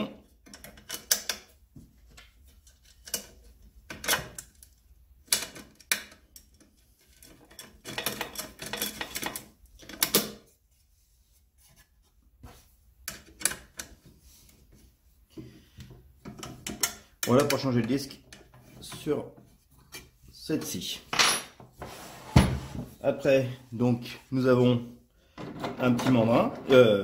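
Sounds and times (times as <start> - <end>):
clicks and knocks of plastic parts: 0.4 - 10.4.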